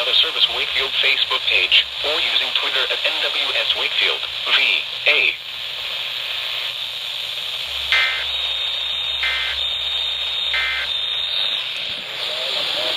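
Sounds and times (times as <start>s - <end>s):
radio hiss: 0.0s - 12.9s
warbling data bursts: 7.5s - 12.9s.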